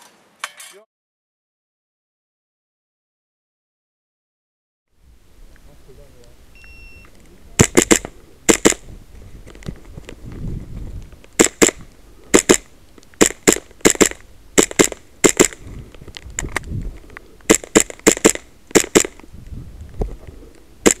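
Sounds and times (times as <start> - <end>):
airsoft pistol shots: 7.6 - 8.8, 11.4 - 15.6, 17.5 - 19.2.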